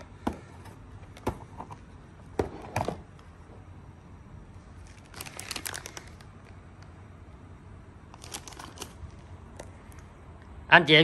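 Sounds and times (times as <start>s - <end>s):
packaging crackling and rustling: 4.8s - 6.6s, 8.1s - 9.2s.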